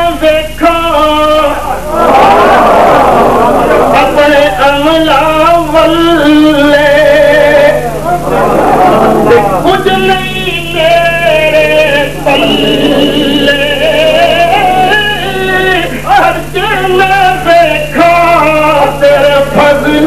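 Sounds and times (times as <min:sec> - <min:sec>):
steady low hum: 0:00.0 - 0:20.0
man singing: 0:04.0 - 0:08.0, 0:09.2 - 0:20.0.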